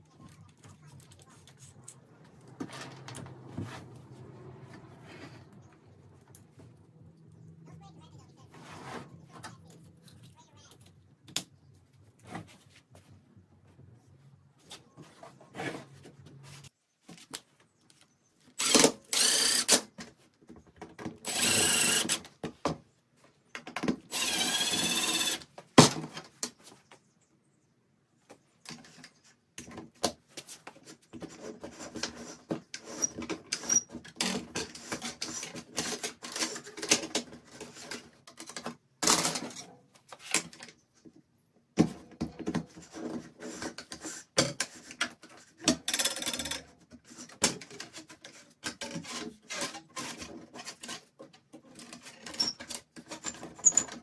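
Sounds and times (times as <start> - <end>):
power tool running: 18.6 - 19.8, 21.3 - 22.2, 24.1 - 25.4.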